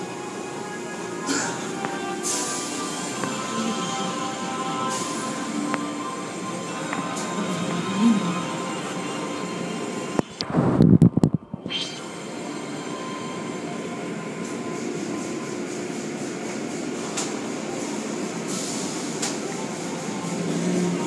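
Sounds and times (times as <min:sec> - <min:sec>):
loud rush of noise: 0:09.6 - 0:12.4.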